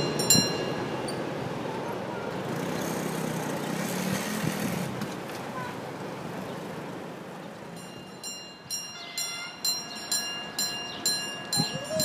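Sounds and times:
level crossing bell ringing: 0:00.0 - 0:01.3, 0:07.8 - 0:12.0.

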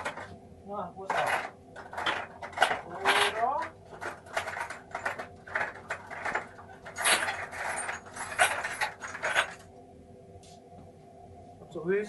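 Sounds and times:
metal parts clicking and rattling: 0:00.0 - 0:00.3, 0:01.0 - 0:09.7.

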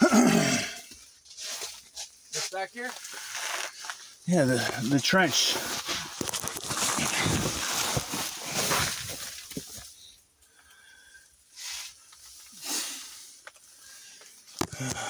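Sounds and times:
scuffing and rustling of crawling: 0:01.0 - 0:10.0.

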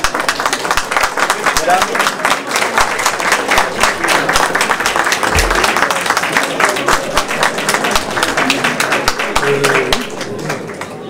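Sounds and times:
audience applauding: 0:00.0 - 0:11.0
low thump: 0:05.3 - 0:05.7.

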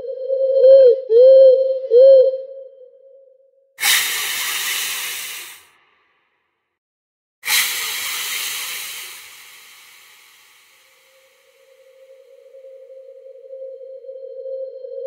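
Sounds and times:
bursts of hissing: 0:03.8 - 0:05.8, 0:07.4 - 0:11.6.

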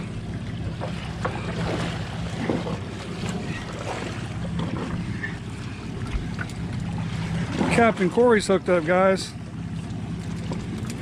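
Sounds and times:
outboard engine idling: 0:00.0 - 0:11.0
sea noise: 0:00.0 - 0:11.0
wind: 0:00.0 - 0:11.0.

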